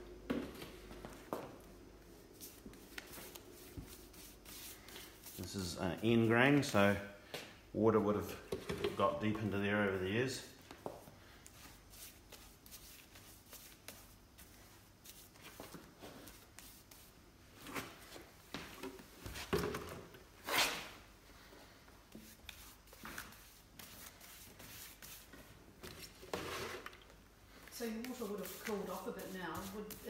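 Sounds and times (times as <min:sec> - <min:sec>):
gloved hands rustling and scuffing wood: 0:00.2 - 0:06.8.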